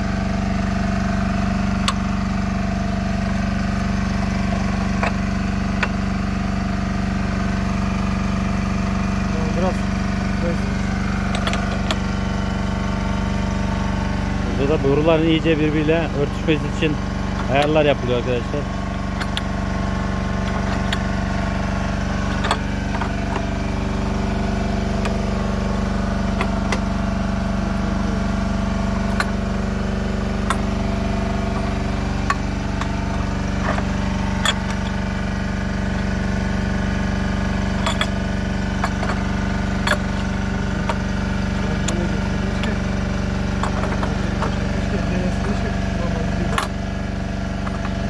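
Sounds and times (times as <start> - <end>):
engine idling: 0.0 - 48.0
sharp clicks and knocks: 4.9 - 6.0, 11.2 - 12.1, 16.8 - 19.7, 20.4 - 21.2, 22.2 - 23.6, 26.3 - 26.9, 29.0 - 29.4, 30.4 - 30.8, 31.5 - 35.0, 37.7 - 42.9, 43.5 - 44.9, 46.4 - 46.8, 47.6 - 48.0.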